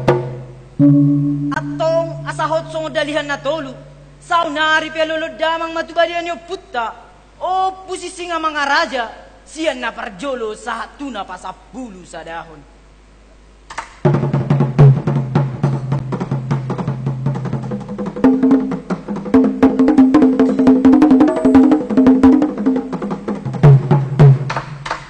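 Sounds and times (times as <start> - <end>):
held melodic line: 0.8 - 3.3, 19.3 - 23.0
fast dense percussion: 14.0 - 25.0.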